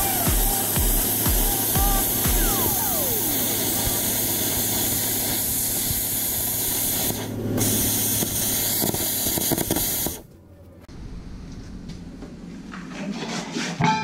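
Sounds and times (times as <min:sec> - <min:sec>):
cutting torch hissing: 0:00.0 - 0:10.3.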